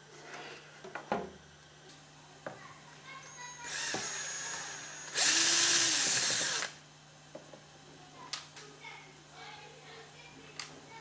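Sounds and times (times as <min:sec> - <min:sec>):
electric screwdriver running: 0:03.6 - 0:06.8.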